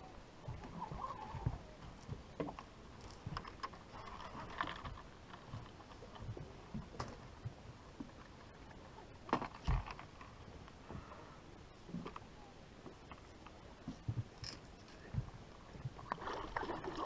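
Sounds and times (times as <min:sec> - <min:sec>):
knocks and rustles of fishing gear: 0:00.4 - 0:08.2, 0:09.3 - 0:11.1, 0:12.8 - 0:17.0.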